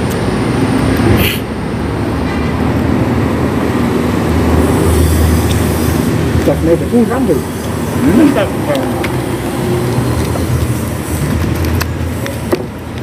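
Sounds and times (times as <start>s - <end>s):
road traffic rumble: 0.0s - 13.0s
vehicle passing: 0.0s - 13.0s
short hiss: 1.1s - 1.5s.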